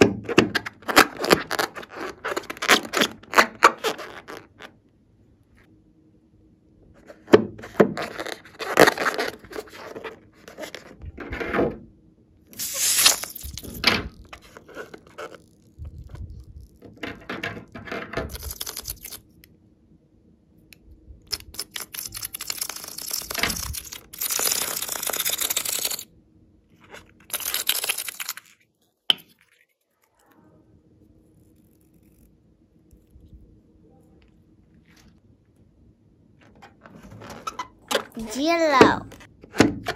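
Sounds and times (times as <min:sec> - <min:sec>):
slime squishing and rubbing: 0:00.6 - 0:04.7, 0:12.6 - 0:16.8, 0:18.3 - 0:19.2, 0:21.3 - 0:26.0, 0:26.8 - 0:28.6.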